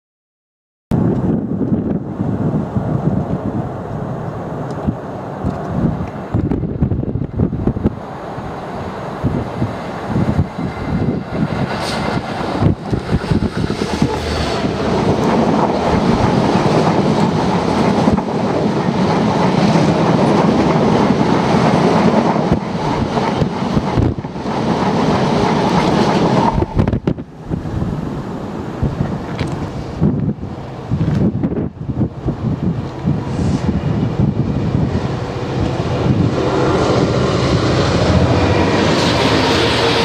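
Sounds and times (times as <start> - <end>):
diesel locomotive passing: 1.1 - 40.0
train wagons clattering by: 10.4 - 27.0.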